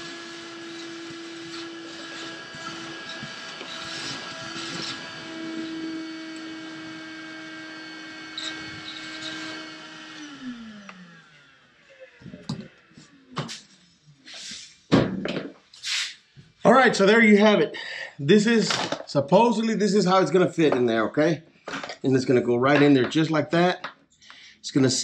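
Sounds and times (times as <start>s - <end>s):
motor spinning down: 0.0s - 14.2s
shop vacuum motor whine: 0.0s - 14.6s
knocks and clatters: 14.9s - 15.6s.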